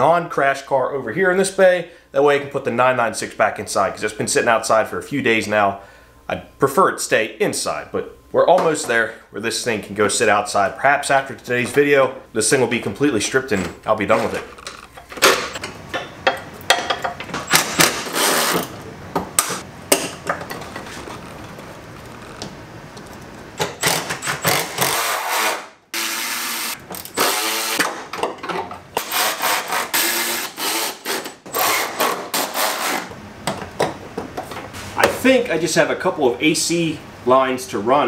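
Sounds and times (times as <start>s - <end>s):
cordless power tool driving bolts: 23.6s - 28.0s.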